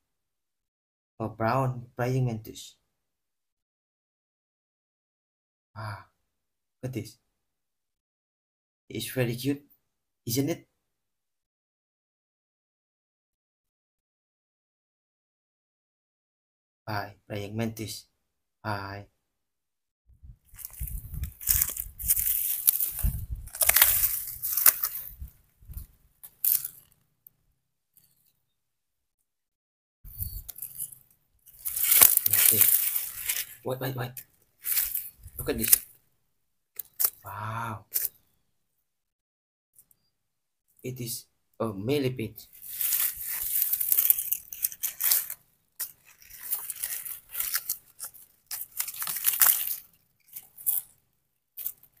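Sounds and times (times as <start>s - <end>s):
hand scraping through dry soil: 20.4s - 27.0s, 30.1s - 33.6s, 34.6s - 35.8s, 42.5s - 51.0s
undergrowth rustling and crunching: 20.4s - 27.0s, 30.1s - 30.9s, 31.5s - 33.6s, 34.6s - 35.9s, 42.5s - 50.9s.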